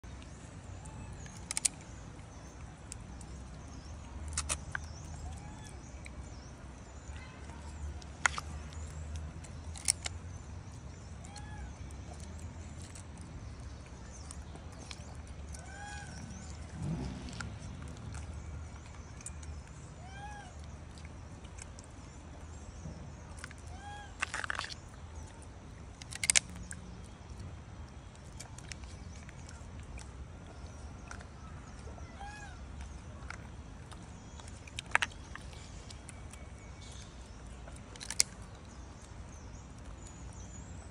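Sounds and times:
low steady rumble: 0.0 - 40.9
plastic clicks: 26.0 - 26.7.

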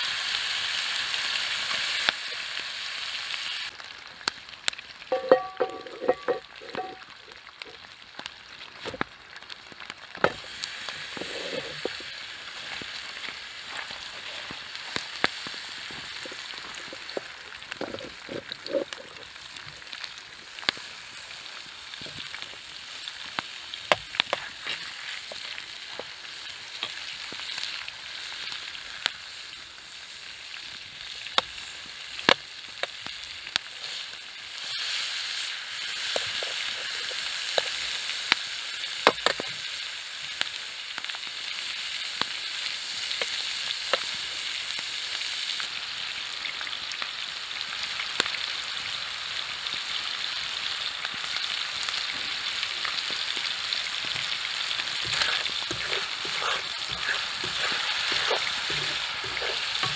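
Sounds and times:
meat sizzling in frying pan: 0.0 - 59.9
fork scraping pan: 5.2 - 7.0, 11.1 - 12.0, 54.8 - 59.9.

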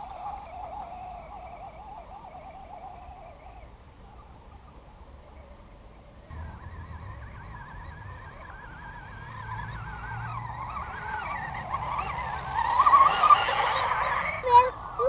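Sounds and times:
rc car electric motor whine: 6.3 - 15.0.

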